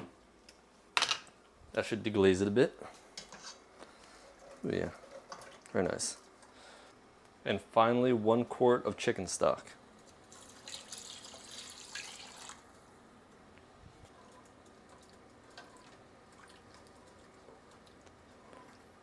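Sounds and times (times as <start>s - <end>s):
liquid pouring into pot: 10.3s - 12.6s.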